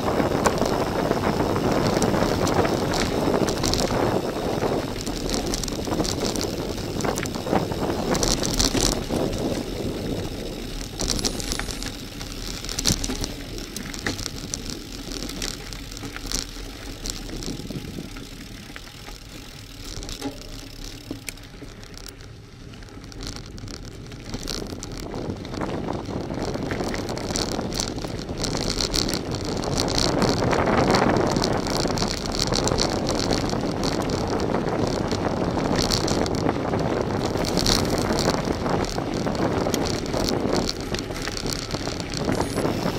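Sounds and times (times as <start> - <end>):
wind on microphone: 0.0 - 15.5, 24.4 - 42.9
bicycle tyres crunching on gravel: 0.0 - 42.9
bike rattling and knocking: 0.0 - 42.9.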